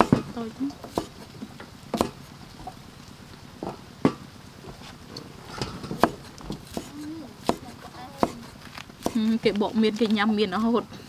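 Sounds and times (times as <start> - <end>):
knife striking chopping block: 0.0 - 1.2, 1.9 - 2.2, 6.0 - 9.2.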